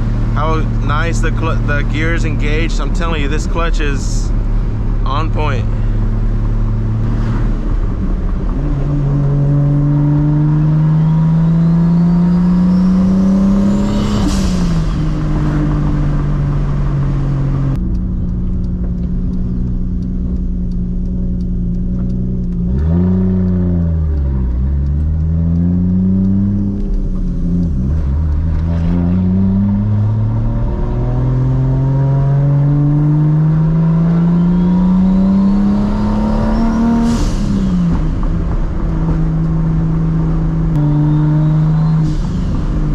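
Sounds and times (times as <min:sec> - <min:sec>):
car engine revving through gears: 0:00.0 - 0:42.9
turbo whistle: 0:40.8 - 0:42.3.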